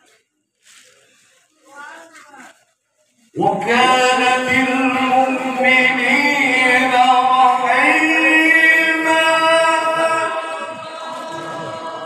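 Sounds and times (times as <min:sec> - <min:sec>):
man reciting melodically: 0:03.3 - 0:11.0.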